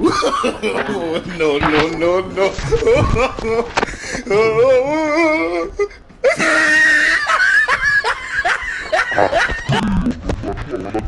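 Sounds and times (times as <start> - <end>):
person laughing: 0.0 - 11.0
high-pitched shrieking laughter: 6.2 - 11.0.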